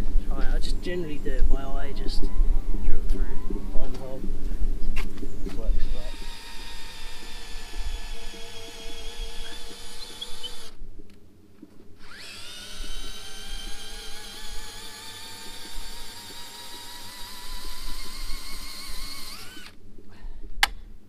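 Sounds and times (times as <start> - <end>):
power drill boring into wood: 5.7 - 10.8, 12.0 - 19.8.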